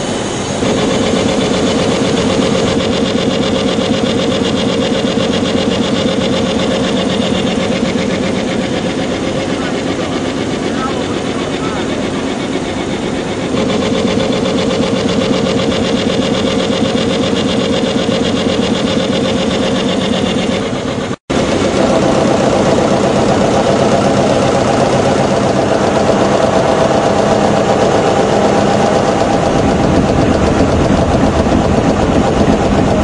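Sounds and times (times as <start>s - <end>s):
gas compressor clattering: 0.0s - 33.0s.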